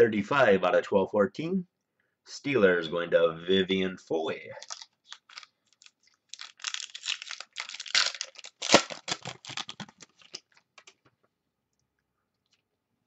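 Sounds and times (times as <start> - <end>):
foil tearing: 4.6 - 10.4
foil wrapper crinkling: 4.6 - 10.9.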